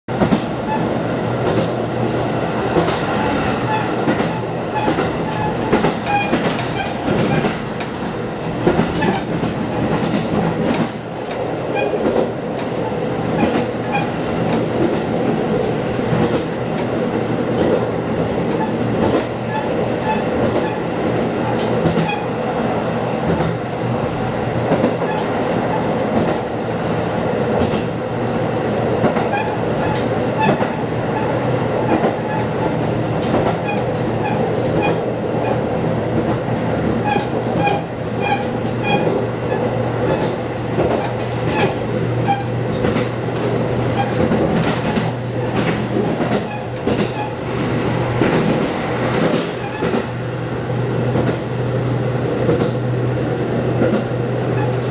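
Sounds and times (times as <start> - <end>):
train engine drone: 0.1 - 54.9
wheels clacking over rail joints: 0.1 - 54.9.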